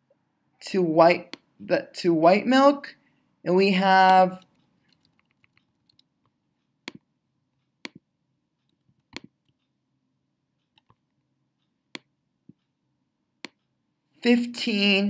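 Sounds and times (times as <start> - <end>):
computer mouse clicking: 4.1 - 7.1, 7.8 - 9.7, 10.6 - 11.2, 13.4 - 13.7.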